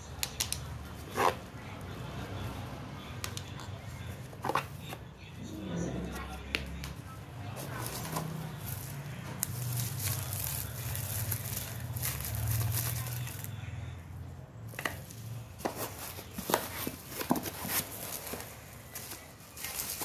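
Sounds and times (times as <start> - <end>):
plastic packaging crinkling: 7.7 - 13.5, 15.8 - 20.0.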